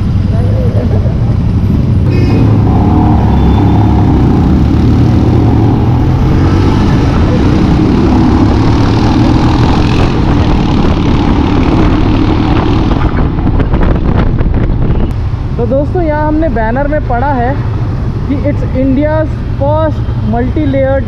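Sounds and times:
motorcycle engine running: 0.0 - 15.1
wind and road noise: 0.0 - 21.0.

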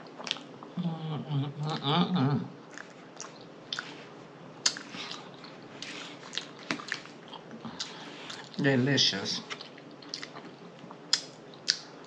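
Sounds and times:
wet chewing and lip-smacking: 0.0 - 0.7, 2.7 - 4.0, 4.6 - 8.6, 9.6 - 12.0
person humming: 0.8 - 2.5.

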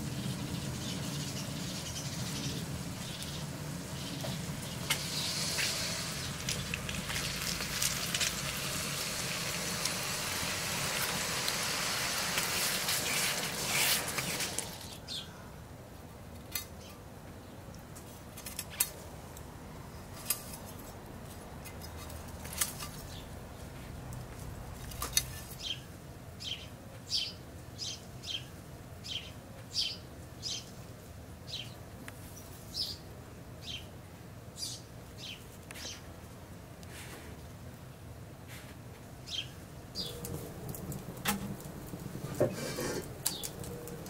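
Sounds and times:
low outdoor background: 0.0 - 44.0
bird chirping: 0.2 - 5.5, 39.3 - 40.7, 43.2 - 44.0.

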